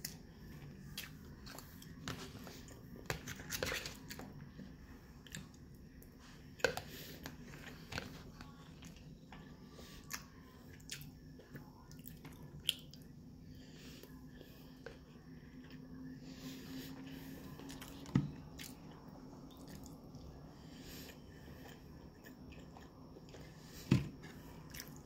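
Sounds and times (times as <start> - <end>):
chewing food: 6.6 - 13.1, 16.9 - 25.0.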